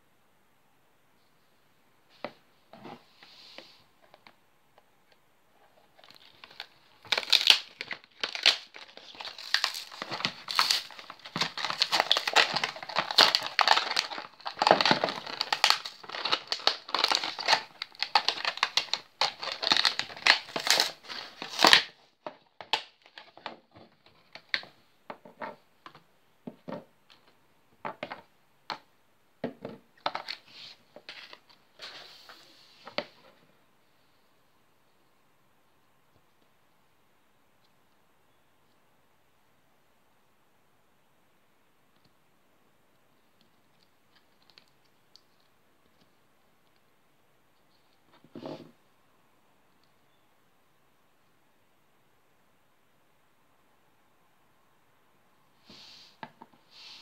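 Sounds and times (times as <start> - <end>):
plastic blister crinkling: 5.7 - 24.8
paper card tearing: 7.0 - 21.8.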